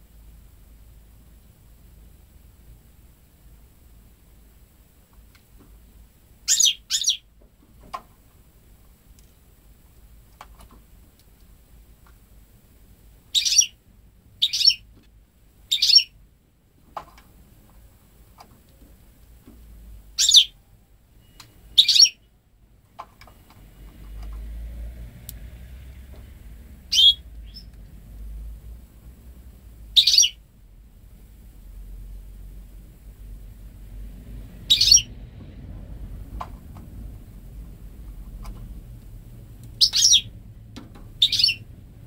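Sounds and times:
bird chirping high: 0:06.4 - 0:07.3, 0:13.3 - 0:13.8, 0:14.4 - 0:14.9, 0:15.7 - 0:16.2, 0:20.1 - 0:20.6, 0:21.2 - 0:22.3, 0:26.9 - 0:27.7, 0:29.9 - 0:30.4, 0:34.6 - 0:35.2, 0:39.7 - 0:40.4, 0:41.2 - 0:41.7.

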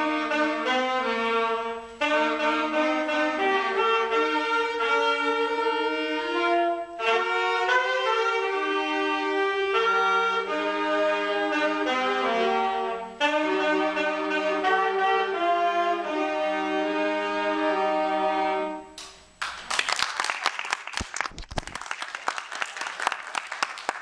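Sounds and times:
saxophone and brass ensemble chords: 0:00.0 - 0:19.0
audience applause: 0:19.4 - 0:24.0.

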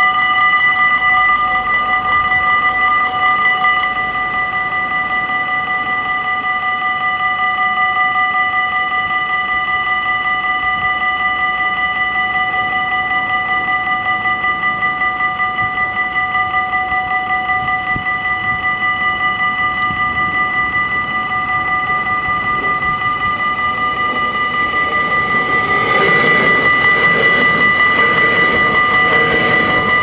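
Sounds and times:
level-crossing warning bells: 0:00.0 - 0:30.0.

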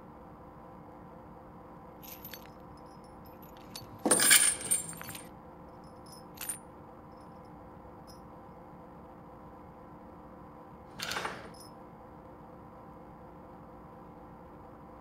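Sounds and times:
metal chain clanking: 0:02.0 - 0:05.3, 0:06.0 - 0:06.6.

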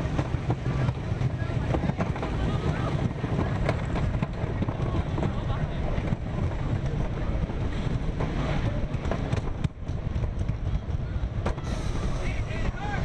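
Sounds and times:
roller coaster wheels rumbling: 0:00.0 - 0:13.0
wind buffeting microphone: 0:00.0 - 0:13.0.

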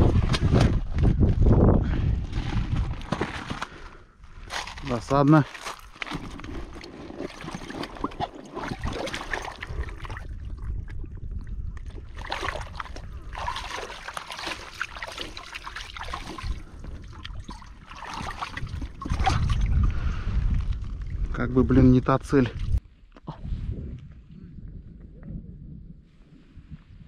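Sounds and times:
water splashing and trickling: 0:04.8 - 0:21.3.

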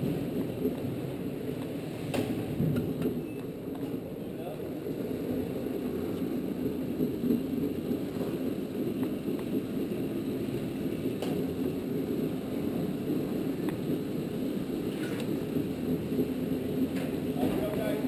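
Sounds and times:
go-kart running at speed: 0:00.0 - 0:18.0
faint clicks: 0:13.6 - 0:13.8.

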